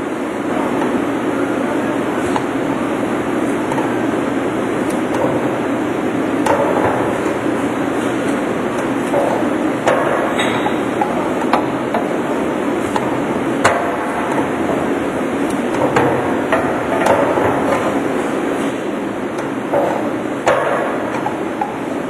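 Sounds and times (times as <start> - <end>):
meat-processing machinery running: 0.0 - 22.0
sharp metallic knocks: 9.1 - 12.1, 19.7 - 21.8.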